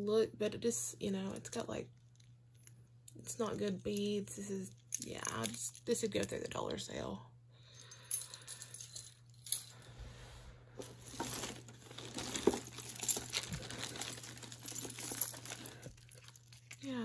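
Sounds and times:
beads and metal pieces clinking: 4.8s - 6.4s, 10.8s - 16.9s
crinkling: 10.8s - 17.0s.

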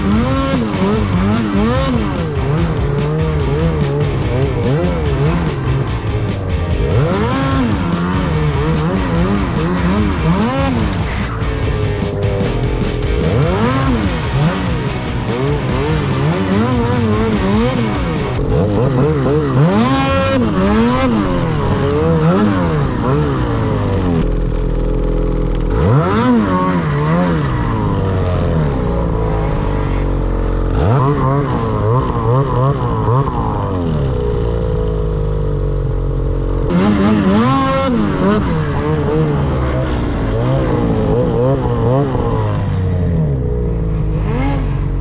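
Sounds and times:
snowmobile engine revving: 0.0s - 45.0s.

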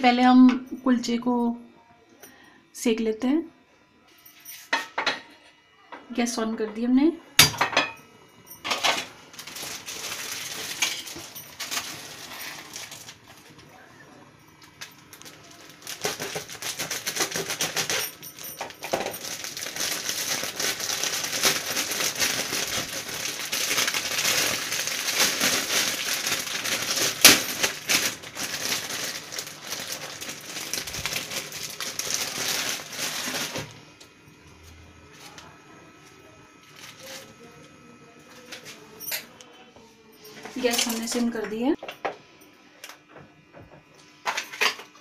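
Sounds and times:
plastic bag crinkling: 8.7s - 13.6s, 14.6s - 34.2s, 36.8s - 37.4s, 40.5s - 41.4s.

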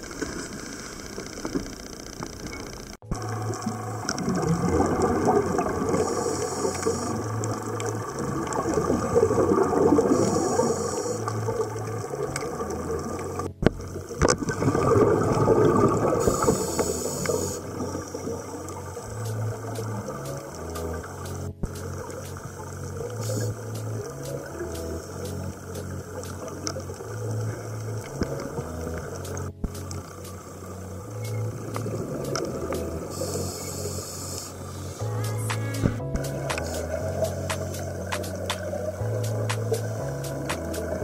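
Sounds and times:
exhaled bubbles rushing: 3.1s - 6.3s, 6.9s - 10.7s, 11.3s - 16.6s, 31.0s - 33.3s
regulator inhalation hiss: 5.9s - 7.3s, 10.0s - 11.4s, 16.2s - 18.2s, 23.2s - 23.9s, 33.0s - 40.9s.

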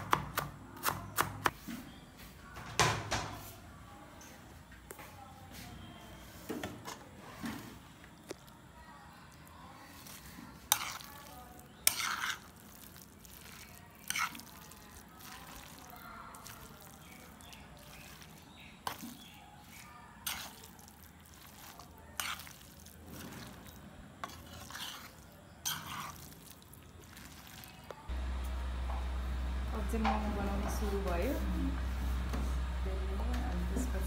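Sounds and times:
soft mixing sounds: 3.2s - 34.0s
spoon clinking and scraping pan: 10.6s - 11.1s, 11.7s - 12.6s, 14.0s - 14.5s, 24.2s - 26.2s.

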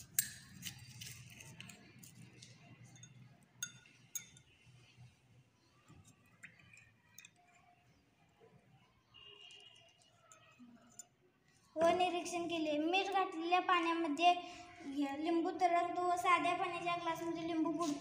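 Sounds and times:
spoon clinking against glass: 0.0s - 2.2s, 2.8s - 4.6s, 9.5s - 11.2s
spoon stirring water: 0.0s - 5.0s, 5.8s - 8.0s, 9.2s - 11.2s.

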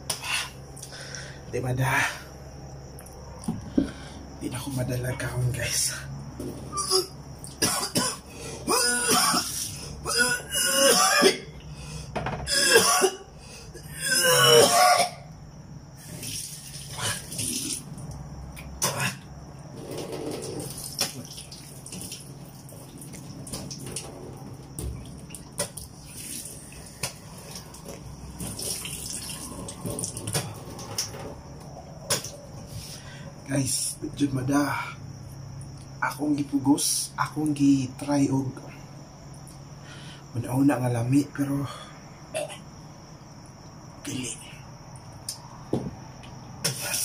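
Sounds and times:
man gagging and retching: 6.5s - 11.6s, 12.4s - 15.3s, 16.9s - 17.8s, 18.7s - 19.3s, 42.3s - 42.7s
man coughing: 6.8s - 11.5s, 12.5s - 13.3s
water splashing and trickling: 16.0s - 18.5s, 19.8s - 31.5s.

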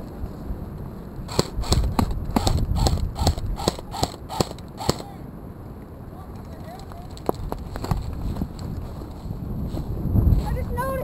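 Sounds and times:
airsoft gun shots: 1.3s - 5.1s.

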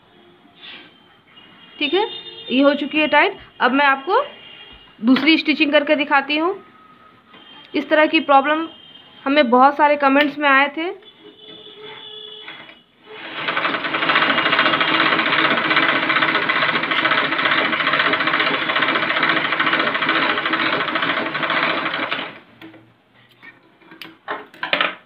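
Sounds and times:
sewing machine stitching: 11.2s - 22.8s.

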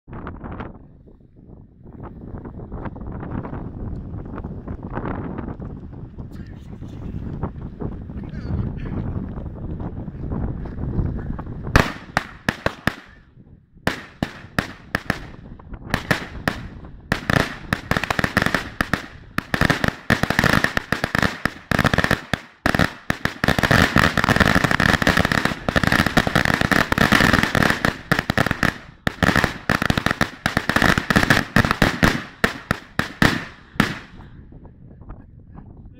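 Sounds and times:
firecrackers banging: 11.8s - 13.2s, 13.9s - 34.3s.

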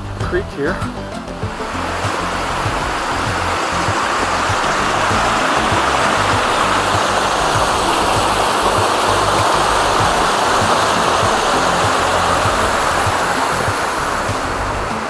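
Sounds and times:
mountain creek rushing: 0.0s - 15.0s.

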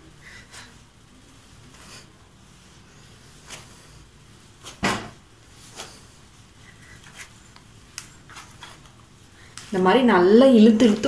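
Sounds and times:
dough thumping on countertop: 4.7s - 5.2s.

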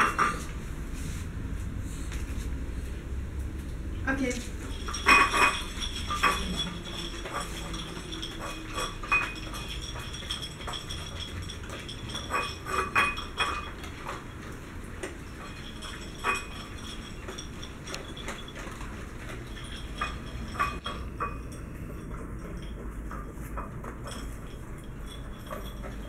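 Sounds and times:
kibble clinking against bowls: 0.0s - 0.6s, 4.4s - 26.0s
dogs crunching dry kibble: 4.6s - 12.7s.

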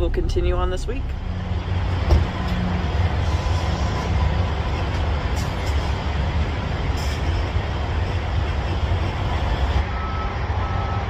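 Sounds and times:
diesel engine rumbling: 0.0s - 11.0s.

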